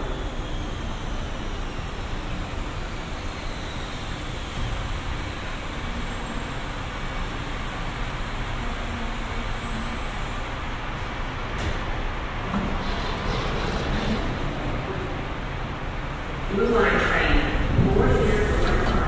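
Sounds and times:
train car rolling to a stop: 0.0 - 16.4.

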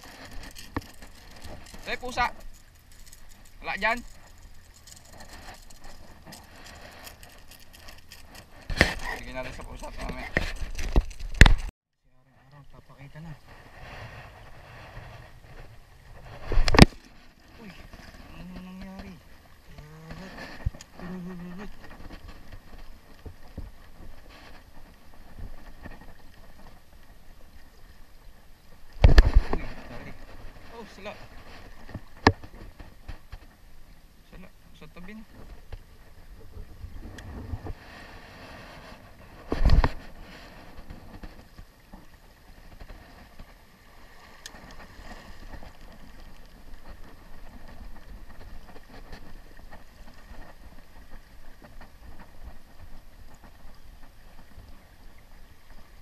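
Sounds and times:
small waves lapping against rocks: 0.0 - 11.7, 12.5 - 56.0
wind rumble on microphone: 35.3 - 56.0.

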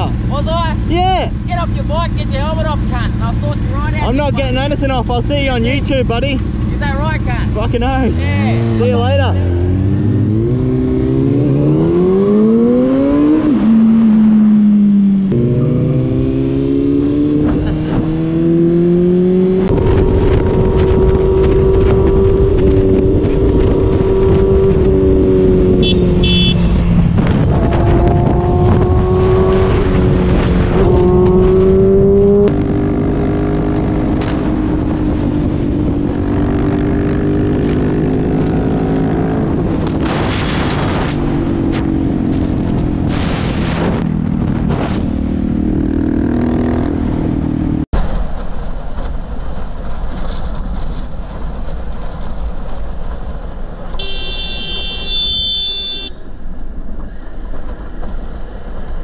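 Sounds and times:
motorcycle engines accelerating: 0.0 - 47.9
wind rush: 15.3 - 54.1
horn sounding: 25.7 - 27.0, 54.0 - 56.2.

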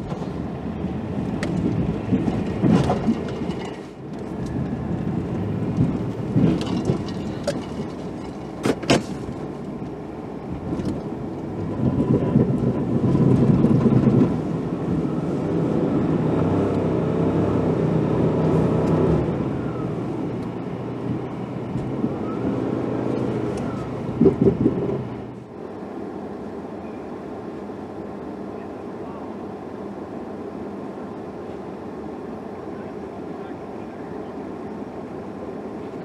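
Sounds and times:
truck engine revving: 11.4 - 25.4.

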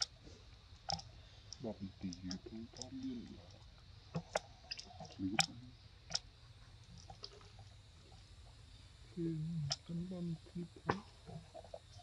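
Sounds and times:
low voice: 1.6 - 3.4, 5.0 - 5.7.

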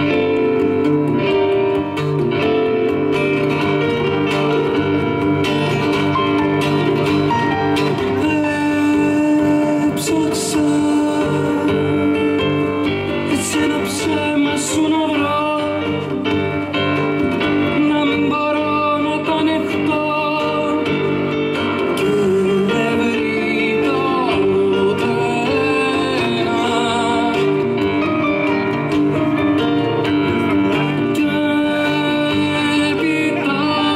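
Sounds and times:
acoustic guitar: 0.0 - 33.9
keyboard: 0.0 - 33.9
woman singing: 8.2 - 12.4, 22.0 - 28.2, 31.0 - 33.9.

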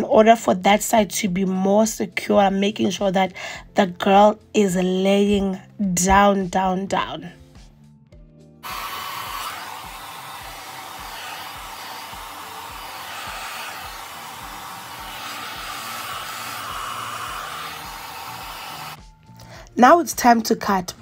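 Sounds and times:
hair dryer blowing: 8.6 - 19.2.

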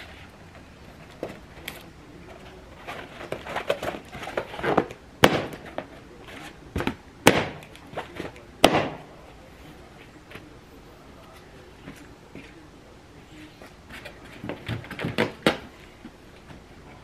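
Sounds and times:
balloons popping: 5.2 - 5.8, 7.2 - 7.8, 8.6 - 9.1.

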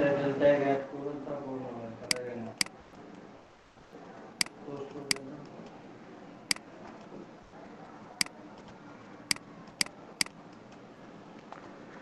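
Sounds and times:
computer mouse clicking: 2.1 - 3.2, 8.2 - 10.8.

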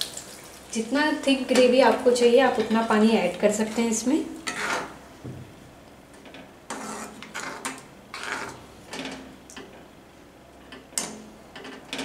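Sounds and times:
metal spoon scraping a pot: 3.6 - 5.0, 6.7 - 8.6.

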